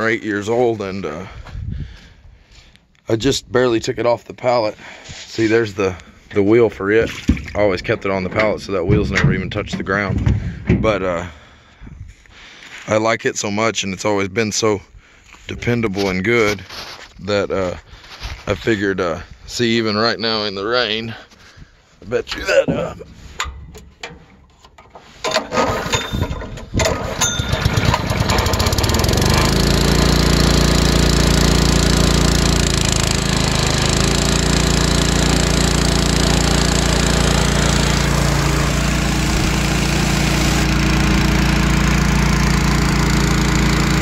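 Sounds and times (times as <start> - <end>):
engine starter pulls: 22.2 - 44.0
air compressor engine running: 22.8 - 44.0.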